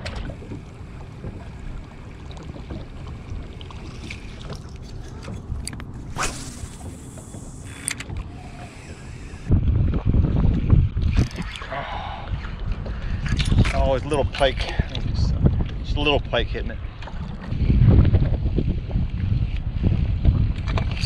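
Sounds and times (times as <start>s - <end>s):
wind and water rumble: 0.0s - 21.0s
sharp swish: 6.1s - 7.0s.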